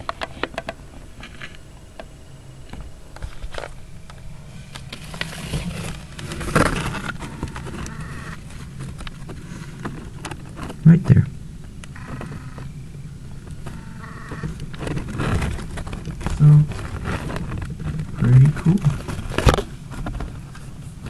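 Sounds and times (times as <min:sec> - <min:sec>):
low steady hum: 0:00.0 - 0:21.0
leaves rustling against camera: 0:04.5 - 0:11.2, 0:13.6 - 0:21.0.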